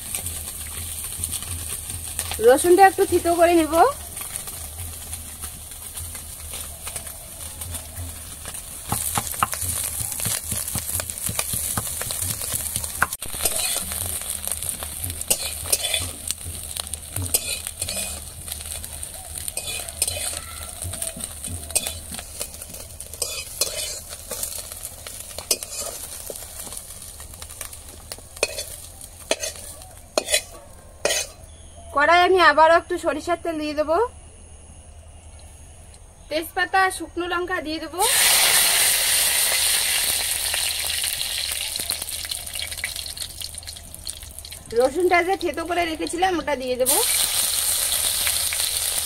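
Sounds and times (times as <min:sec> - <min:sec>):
fish sizzling in hot oil: 0:00.0 - 0:31.3, 0:38.0 - 0:49.0
metal spatula scraping a wok: 0:13.2 - 0:20.4, 0:21.2 - 0:26.8, 0:28.4 - 0:31.5.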